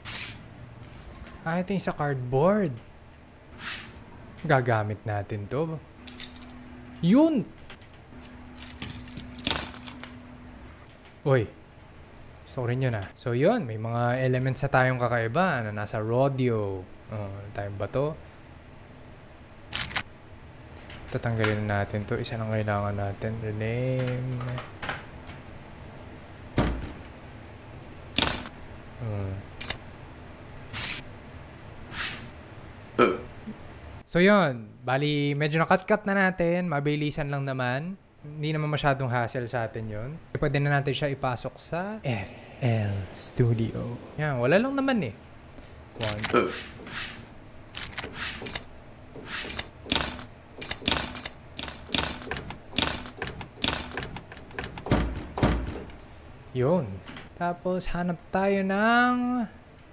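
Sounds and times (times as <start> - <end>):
keys jangling: 6.0 - 6.8, 8.2 - 10.2, 28.2 - 28.5, 47.8 - 48.7, 49.4 - 54.7
cardboard sound: 47.8 - 48.4.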